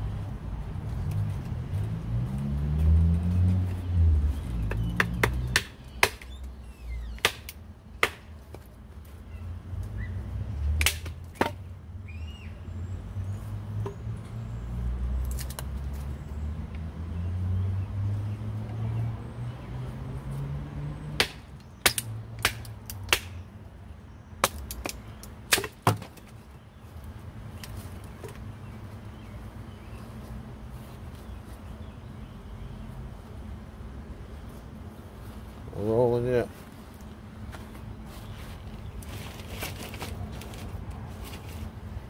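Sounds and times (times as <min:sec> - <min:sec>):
wood splitting: 0:04.7 - 0:06.3, 0:07.2 - 0:08.7, 0:10.8 - 0:11.6, 0:21.2 - 0:23.4, 0:24.4 - 0:26.3.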